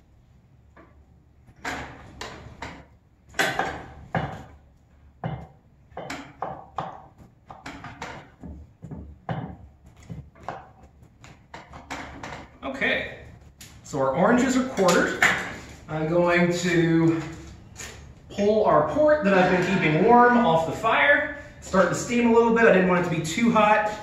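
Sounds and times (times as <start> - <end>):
knife chopping on wooden board: 5.2 - 12.6.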